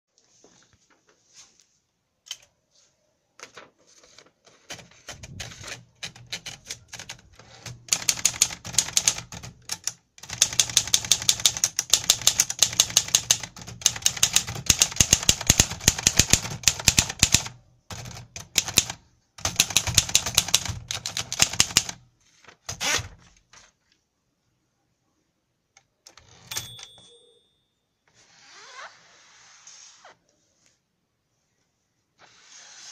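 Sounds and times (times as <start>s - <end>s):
typewriter keys clicking: 4.6s - 22.0s.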